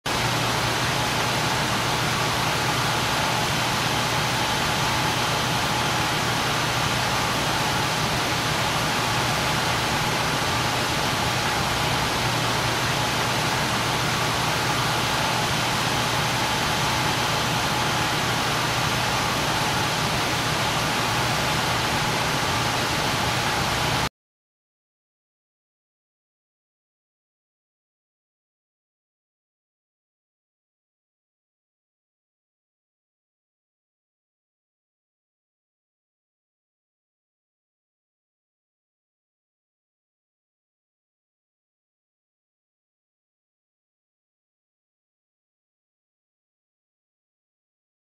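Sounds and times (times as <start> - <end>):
dense rush of industrial noise: 0.1 - 24.1.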